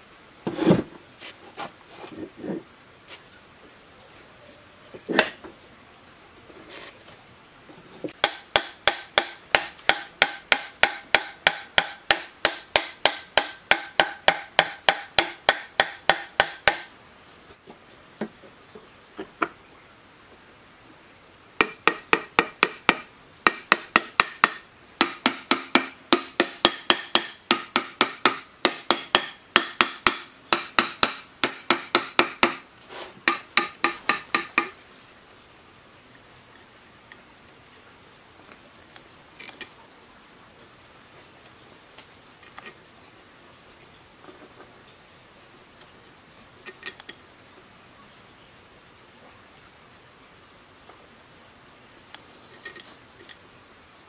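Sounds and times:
hammer tapping on metal cover: 8.2 - 16.9, 21.6 - 32.6, 33.3 - 34.8.

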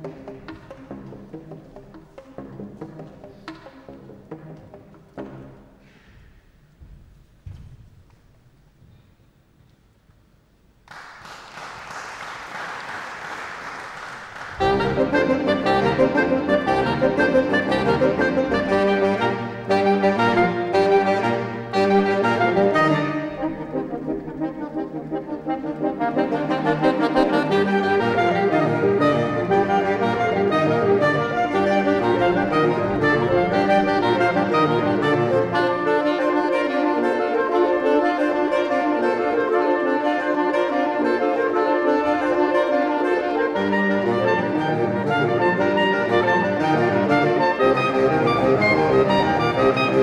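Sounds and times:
saxophone quartet playing chords: 13.1 - 50.0.

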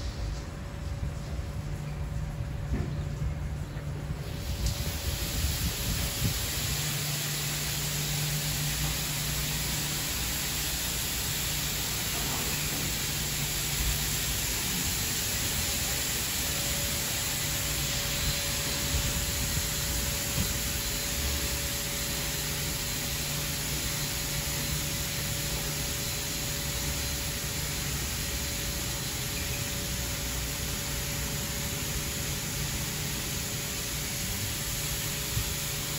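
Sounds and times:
water spray hissing: 4.2 - 35.9.

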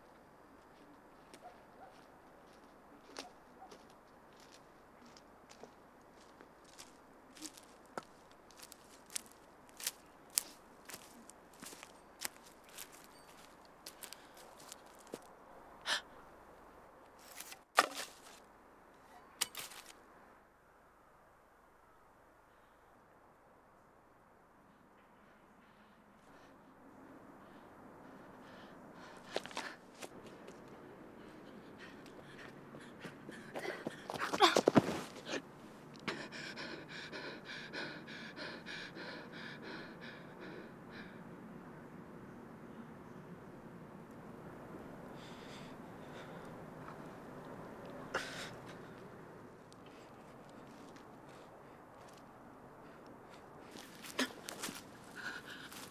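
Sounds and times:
footsteps crunching dry grass: 0.7 - 15.3, 17.2 - 18.4, 19.5 - 20.0
quick gasping breaths: 27.4 - 30.1, 31.1 - 41.3, 48.1 - 49.1, 52.8 - 55.9.

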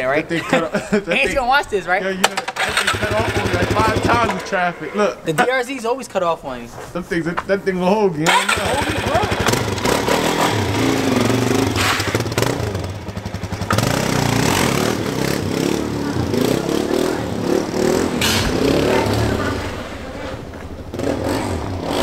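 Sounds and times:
dirt bike engine revving: 2.4 - 5.2, 8.3 - 22.0
engine backfire pops: 18.2 - 18.7.

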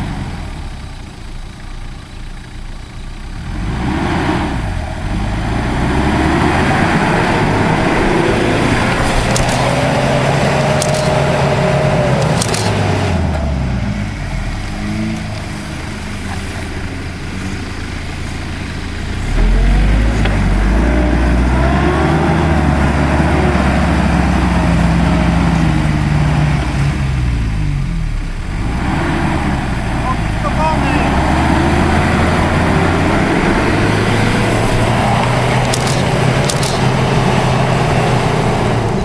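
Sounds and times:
suv engine revving: 0.0 - 39.0
sharp cracks: 5.2 - 13.5, 31.5 - 39.0.

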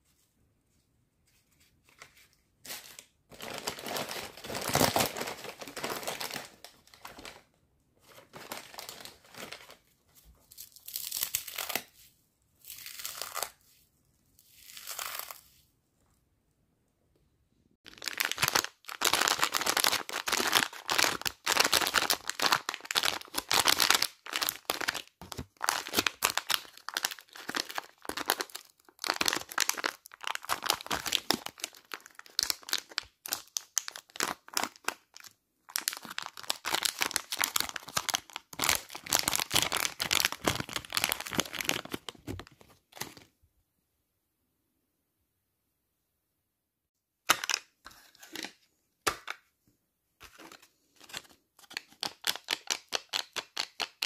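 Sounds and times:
plastic snack packets crinkling: 2.7 - 7.5, 8.1 - 9.9, 17.9 - 43.3, 50.3 - 54.0
foil wrapper crinkling: 17.9 - 43.1.

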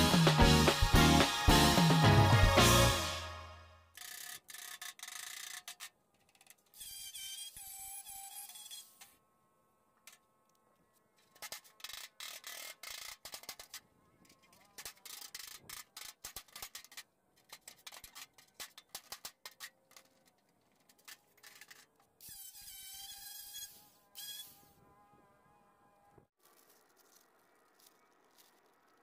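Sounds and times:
hand tool scraping sheet metal: 4.0 - 9.2, 11.2 - 24.8
angle grinder on steel: 6.6 - 9.2, 21.4 - 25.1.

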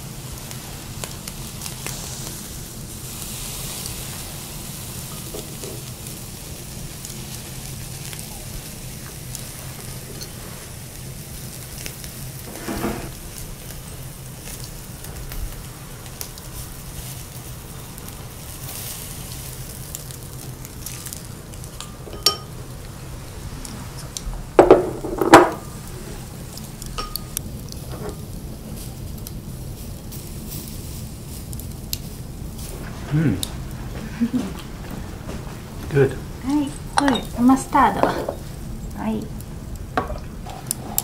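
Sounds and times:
meat sizzling on a grill: 0.0 - 41.0
chopsticks and tableware clicking: 21.7 - 22.6.

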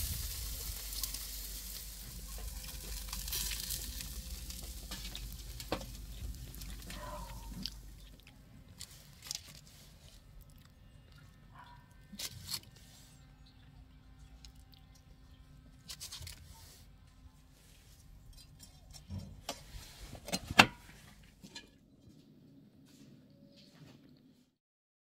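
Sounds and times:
foil wrapper crinkling: 0.0 - 10.6, 15.8 - 16.5.

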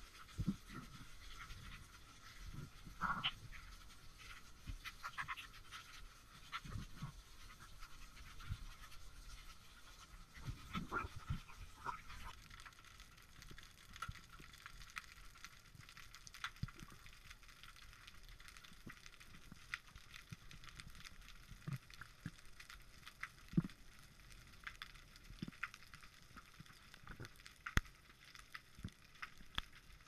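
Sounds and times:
muffled underwater knocks and scrapes: 0.2 - 12.3.

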